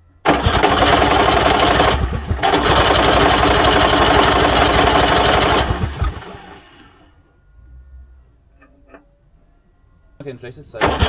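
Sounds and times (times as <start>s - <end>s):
engine cranking without starting: 0.2s - 7.2s, 10.8s - 11.0s.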